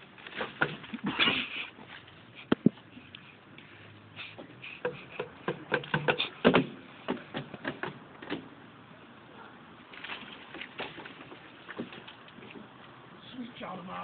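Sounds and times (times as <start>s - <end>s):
rope swing creaking and knocking: 0.0s - 3.6s, 4.3s - 8.6s, 9.8s - 13.0s.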